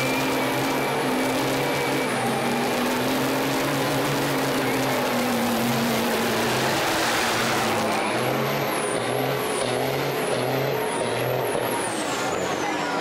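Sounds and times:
truck engine revving hard: 0:00.0 - 0:13.0.

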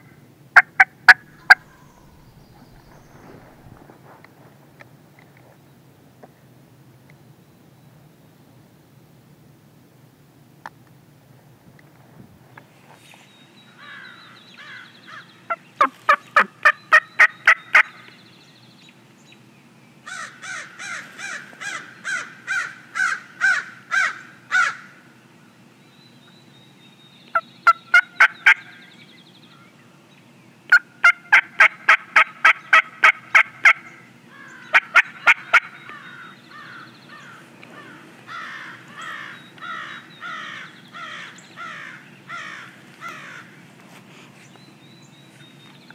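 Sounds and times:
wild turkeys calling: 0:00.6 - 0:03.8, 0:13.8 - 0:18.1, 0:27.3 - 0:28.8, 0:30.7 - 0:43.5.

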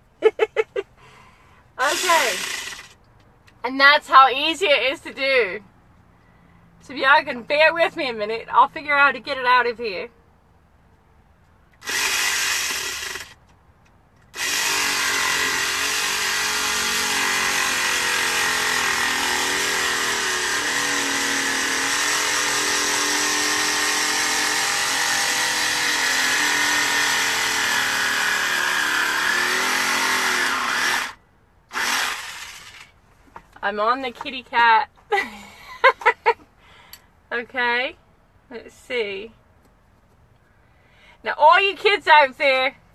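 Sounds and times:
small saw cutting pumpkin: 0:01.8 - 0:03.0, 0:11.8 - 0:13.4, 0:14.3 - 0:33.0.

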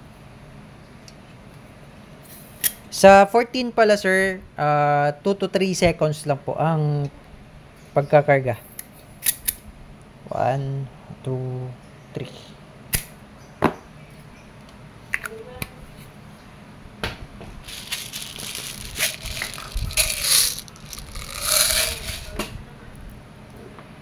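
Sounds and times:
magazine rattling and rustling: 0:17.6 - 0:22.4.

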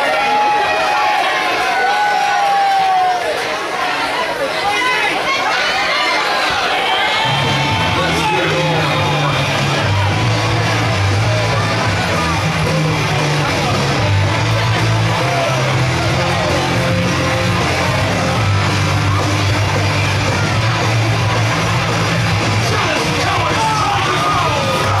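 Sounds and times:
crowd yelling: 0:00.0 - 0:25.0
entrance music over sound system: 0:07.2 - 0:25.0.

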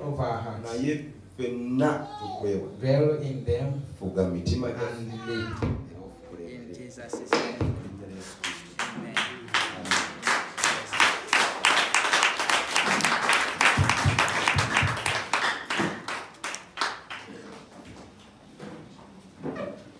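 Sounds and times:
congregation clapping hands: 0:08.2 - 0:17.7.

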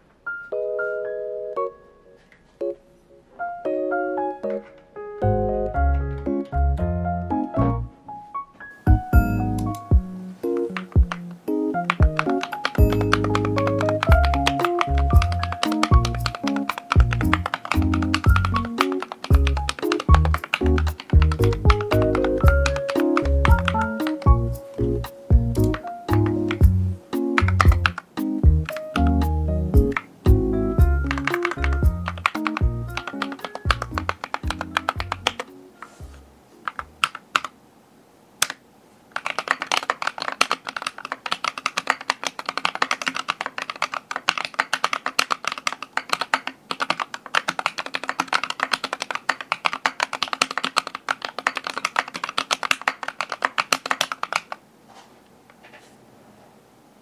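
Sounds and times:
mechanical keyboard typing: 0:09.2 - 0:35.6, 0:36.6 - 0:37.5, 0:38.4 - 0:54.6.

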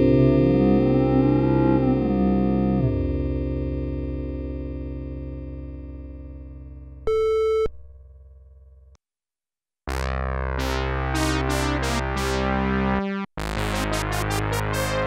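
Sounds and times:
synthesizer chords: 0:00.0 - 0:06.7, 0:09.9 - 0:15.0.

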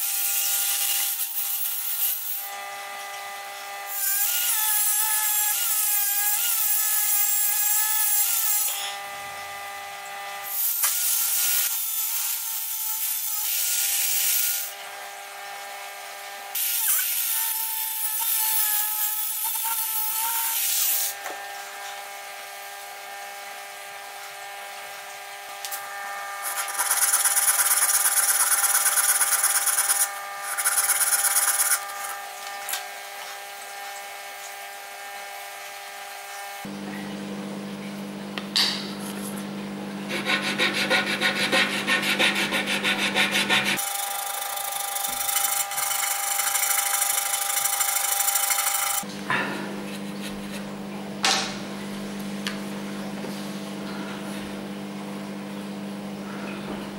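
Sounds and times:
sanding disc grinding wood: 0:25.9 - 0:32.4, 0:40.1 - 0:49.1
angle grinder motor whine: 0:43.8 - 0:49.1.

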